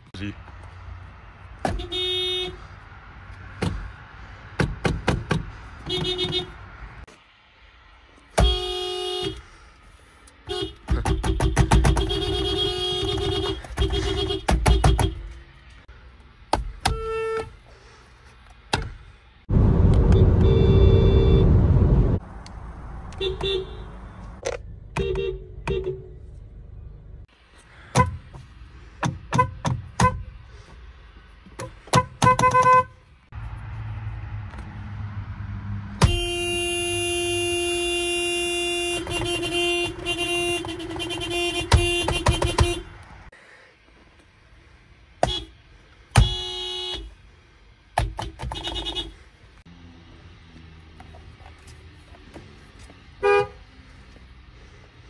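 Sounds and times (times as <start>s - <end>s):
car horns honking: 1.6s - 2.8s, 5.8s - 6.8s, 8.3s - 9.6s, 10.4s - 15.4s, 16.8s - 17.6s, 20.0s - 22.2s, 23.0s - 26.2s, 27.8s - 28.4s, 29.2s - 30.4s, 31.6s - 33.0s, 35.8s - 43.2s, 45.2s - 47.2s, 48.1s - 49.2s, 53.2s - 53.7s.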